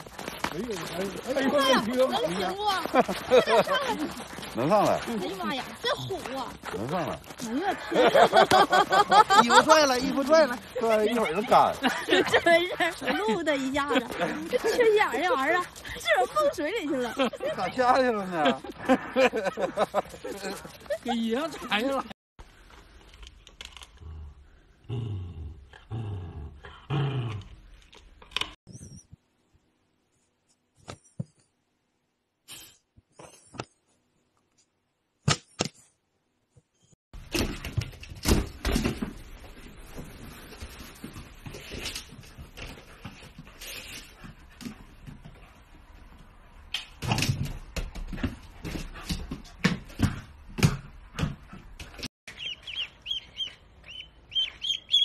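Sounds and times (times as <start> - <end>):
puppy growling low: 24.0 - 27.6.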